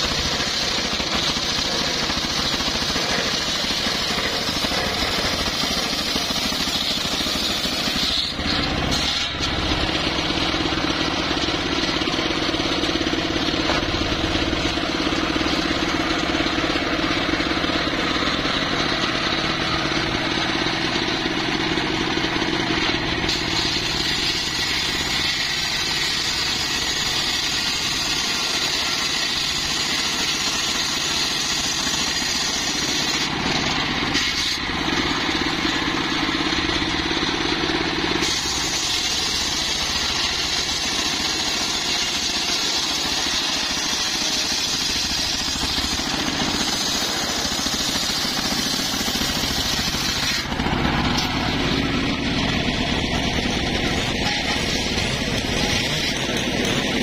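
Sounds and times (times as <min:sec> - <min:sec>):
circular saw cutting wood: 0:00.0 - 0:57.0
stationary engine running: 0:00.0 - 0:57.0.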